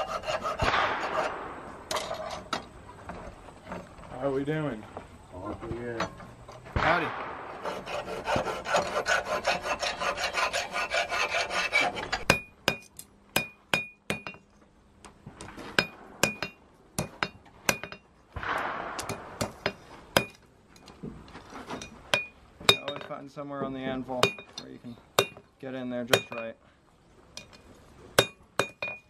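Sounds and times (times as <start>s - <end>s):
hand tool scraping steel: 0.0s - 4.0s, 7.5s - 14.4s, 15.4s - 18.1s, 19.1s - 23.2s, 24.0s - 25.5s, 26.1s - 26.6s, 27.4s - 29.0s.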